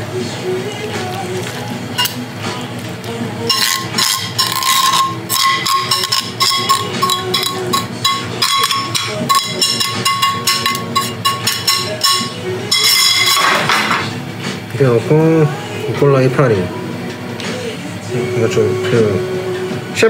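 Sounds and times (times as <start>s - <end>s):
metal tongs scraping a metal pan: 2.0s - 2.2s, 3.5s - 14.1s
steady metallic ring: 3.5s - 13.6s.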